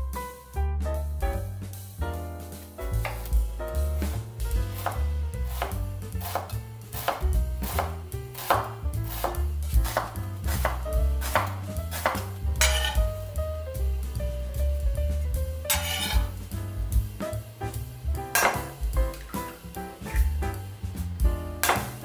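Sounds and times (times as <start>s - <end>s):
jazz music: 0.0s - 22.0s
knife chopping on cutting board: 3.0s - 3.4s, 4.0s - 13.1s, 15.7s - 16.3s, 18.3s - 20.6s, 21.6s - 22.0s.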